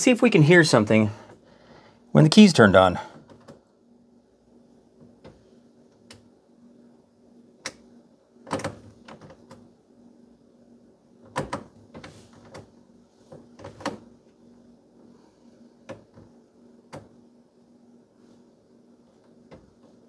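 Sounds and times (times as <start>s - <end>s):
faint steady hum: 0.0s - 20.0s
irregular clicks and knocks: 7.6s - 9.7s, 11.2s - 14.2s, 15.8s - 17.2s, 19.1s - 20.0s.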